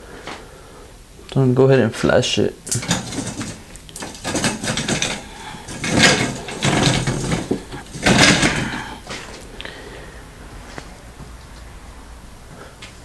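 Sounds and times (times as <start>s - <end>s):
metal press sliding and scraping: 2.7s - 9.4s.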